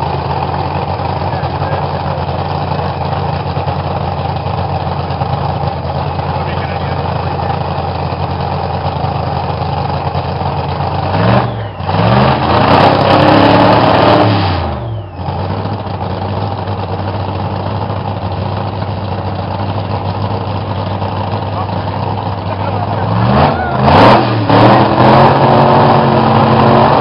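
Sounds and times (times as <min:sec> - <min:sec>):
race car engines idling: 0:00.0 - 0:27.0
engine revving hard: 0:10.8 - 0:15.8, 0:21.6 - 0:27.0.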